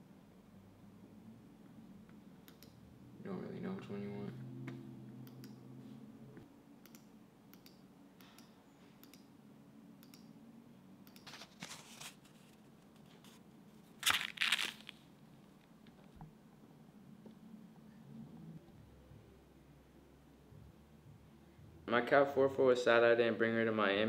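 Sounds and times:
paper bills rustling: 0:11.2 - 0:15.0.

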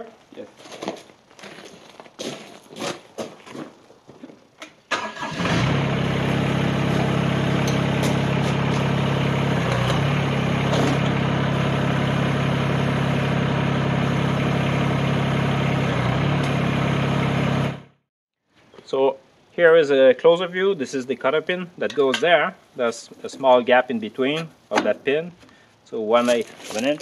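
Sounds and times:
diesel tractor engine running: 0:04.9 - 0:18.0.

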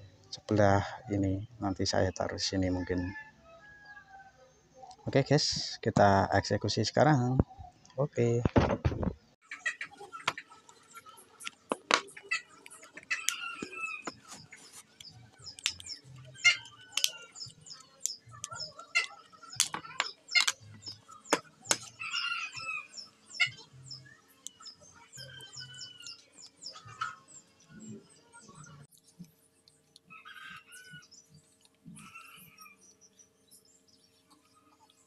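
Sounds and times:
chickens clucking: 0:09.4 - 0:23.7
plastic clicks and taps: 0:18.0 - 0:20.6.

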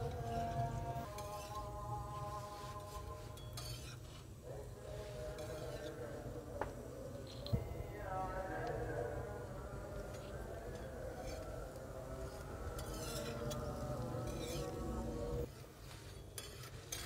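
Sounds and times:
spatula clinking on iron griddle: 0:03.4 - 0:04.1, 0:12.8 - 0:14.8, 0:16.2 - 0:17.0.

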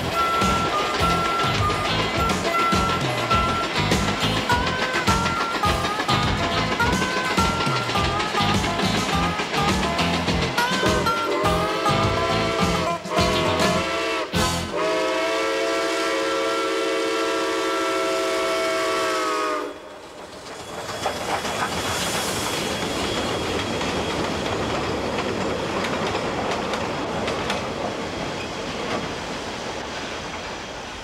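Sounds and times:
steam locomotive chime whistle: 0:00.0 - 0:20.0
locomotive and train rushing: 0:00.0 - 0:31.0.

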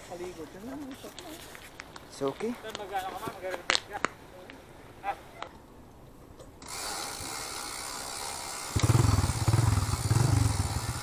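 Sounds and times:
motorcycle engine running: 0:08.6 - 0:11.0.

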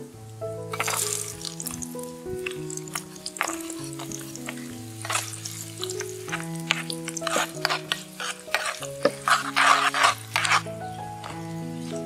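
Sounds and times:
garlic sizzling in hot oil: 0:00.7 - 0:12.0.

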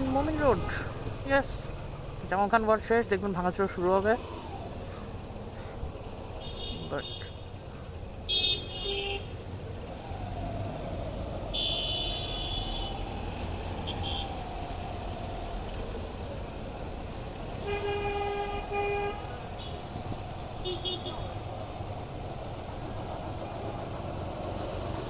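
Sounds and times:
motorcycle engine and road noise: 0:00.0 - 0:25.0
vehicle horns honking: 0:06.4 - 0:07.5, 0:08.3 - 0:09.4, 0:11.5 - 0:13.0, 0:17.6 - 0:19.9, 0:20.6 - 0:21.4.

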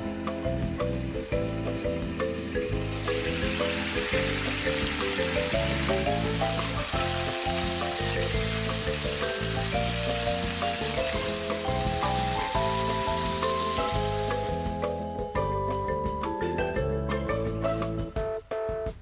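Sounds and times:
background music with bass line: 0:00.0 - 0:19.0
food sizzling in oil: 0:00.8 - 0:15.1.

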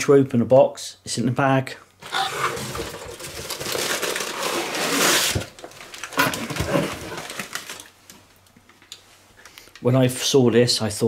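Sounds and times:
paper packaging rustling: 0:02.0 - 0:08.3.

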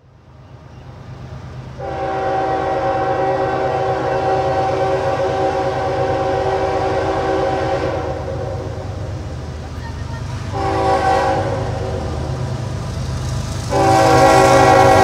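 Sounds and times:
low rumble of train: 0:00.0 - 0:15.0
locomotive air horn blast: 0:01.8 - 0:08.9, 0:10.5 - 0:12.4, 0:13.7 - 0:15.0.

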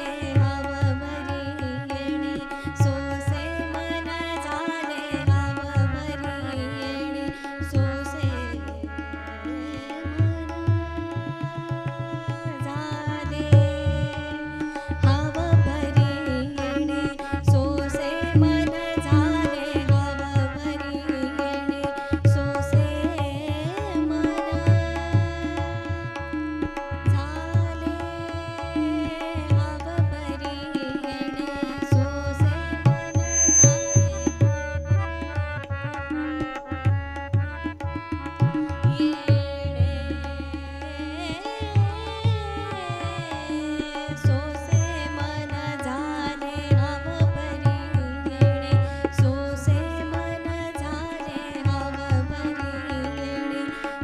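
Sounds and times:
woman singing: 0:00.0 - 0:35.4, 0:38.2 - 0:54.0
tabla rhythm: 0:00.0 - 0:54.0.

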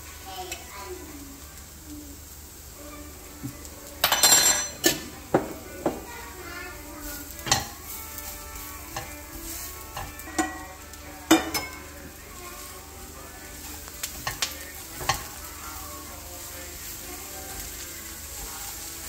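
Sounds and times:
onions sizzling: 0:00.0 - 0:19.0
wooden spatula scraping pan: 0:07.0 - 0:10.8.

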